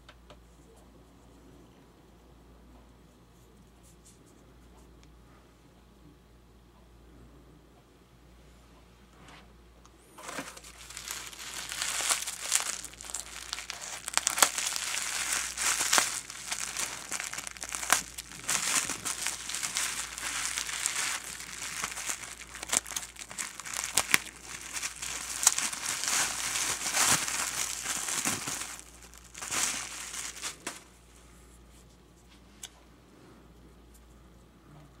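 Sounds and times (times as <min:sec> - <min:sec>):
bubble wrap crinkling and crackling: 0:10.2 - 0:31.1.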